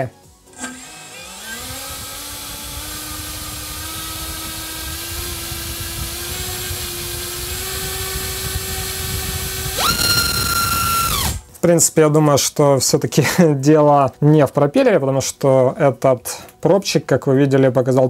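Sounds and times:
electric motor whining: 0.4s - 11.5s.

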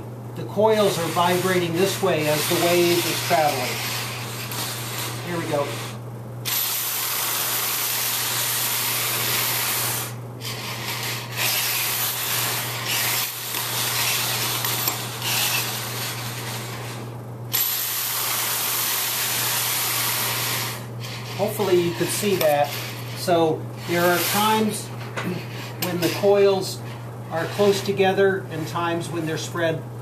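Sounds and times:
spring rubbing on table: 10.4s - 17.0s, 19.9s - 28.8s
metal spring coils rattling: 10.5s - 16.6s.

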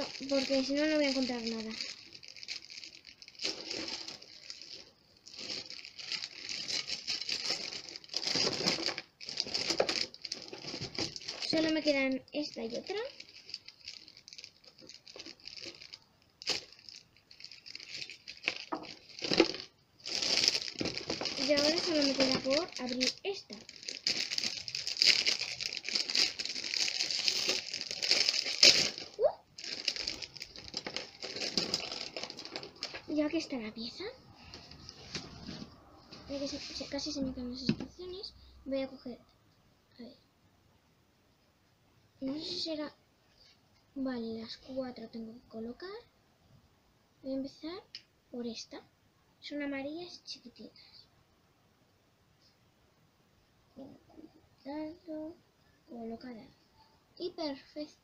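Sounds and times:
plastic bags crinkling and tearing: 0.0s - 35.6s.

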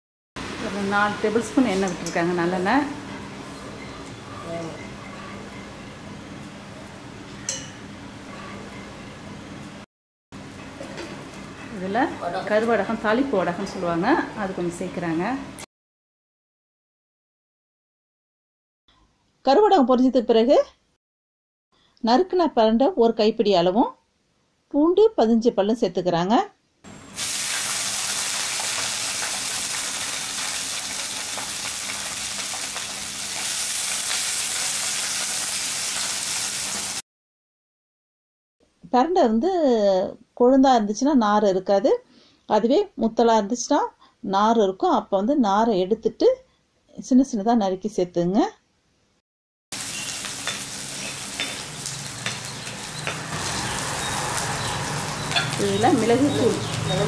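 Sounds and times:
food sizzling in hot oil: 26.9s - 37.0s, 49.7s - 57.0s.

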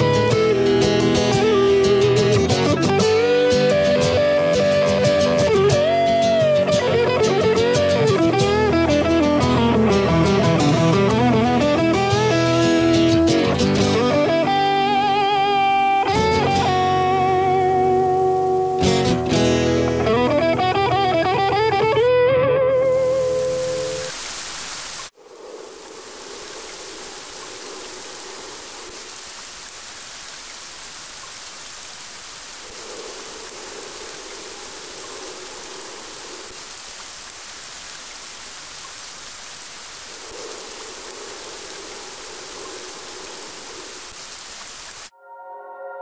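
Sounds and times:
steady rain falling: 0.0s - 45.1s
musical note: 45.1s - 46.0s.

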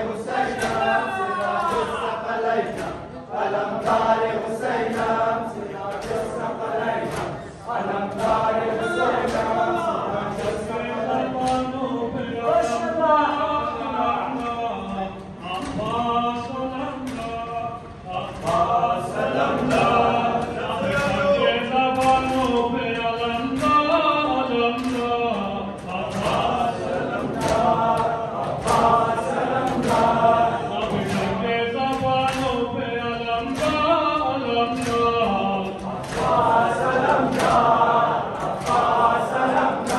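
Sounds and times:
men chanting in unison: 0.0s - 39.9s
hands slapping chests: 25.8s - 30.3s, 30.9s - 32.6s, 34.7s - 39.9s.

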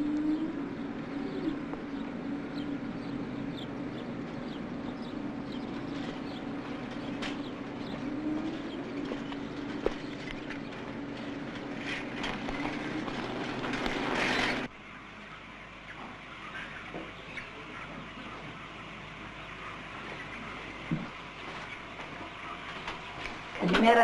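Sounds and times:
steady drone: 0.0s - 15.2s
bicycle rattling over dirt road: 9.1s - 14.7s.

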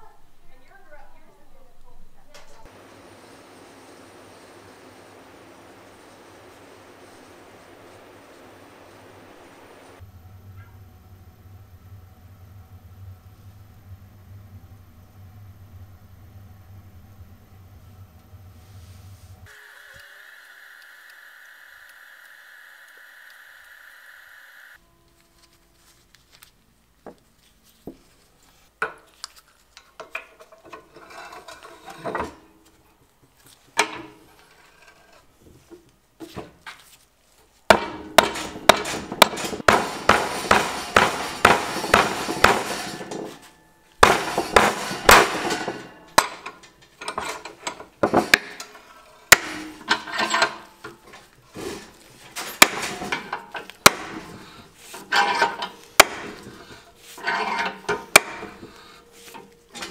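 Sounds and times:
metal-on-metal hammer blows: 37.7s - 46.5s, 48.3s - 50.6s, 52.5s - 54.4s, 55.1s - 56.7s, 57.5s - 58.8s.

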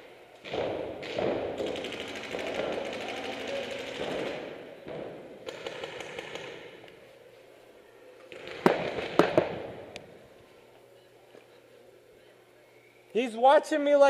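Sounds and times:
rapid paintball shots: 0.4s - 6.8s, 8.3s - 9.8s.

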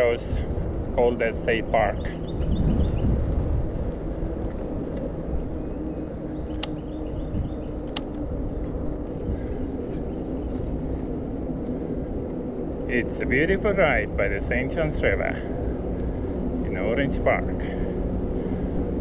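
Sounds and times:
road and wind rumble: 0.0s - 19.0s
car traffic: 6.2s - 7.0s, 7.7s - 8.2s
sharp clicks: 6.5s - 6.8s, 7.9s - 8.2s.

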